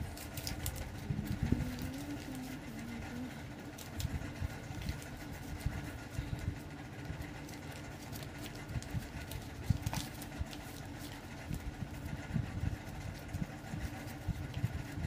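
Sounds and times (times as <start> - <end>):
banknotes crinkling and tapping: 0.0 - 12.2, 12.8 - 15.0
low machine hum: 0.0 - 15.0.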